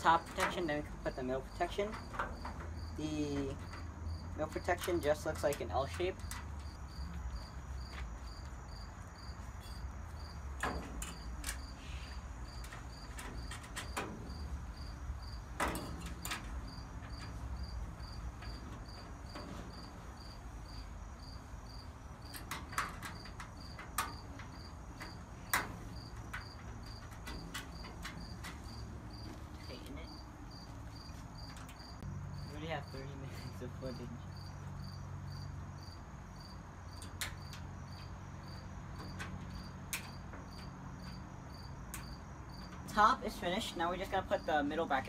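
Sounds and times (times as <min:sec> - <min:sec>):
metal clicks and knocks: 0:00.0 - 0:06.8, 0:09.6 - 0:11.8, 0:12.4 - 0:20.8, 0:22.2 - 0:29.6, 0:31.0 - 0:32.1, 0:38.9 - 0:41.3
cricket chirping: 0:00.0 - 0:45.0.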